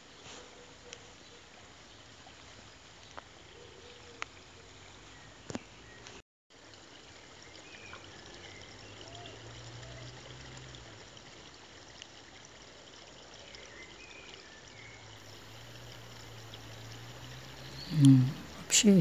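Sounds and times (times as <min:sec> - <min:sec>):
faint high chirps: 0:15.3 - 0:19.0
low hum: 0:15.3 - 0:19.0.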